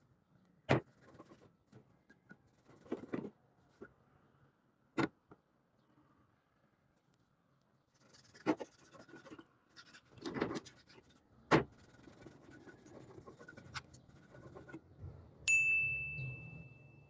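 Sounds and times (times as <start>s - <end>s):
bright ding: 15.5s - 17.0s.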